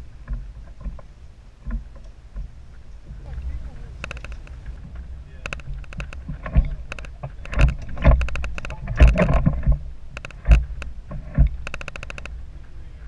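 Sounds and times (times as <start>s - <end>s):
low thumps: 0.0s - 12.4s
fishing reel clicker ratcheting: 10.2s - 10.9s, 11.6s - 12.3s.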